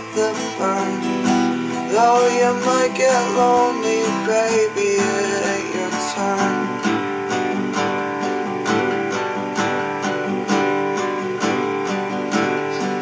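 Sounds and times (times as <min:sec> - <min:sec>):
acoustic guitar chords strumming: 0:00.0 - 0:13.0.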